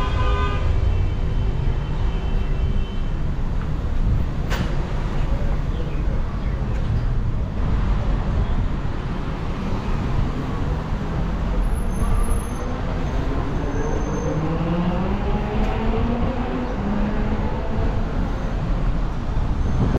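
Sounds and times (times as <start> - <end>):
rumble of cars on road: 0.0 - 19.9.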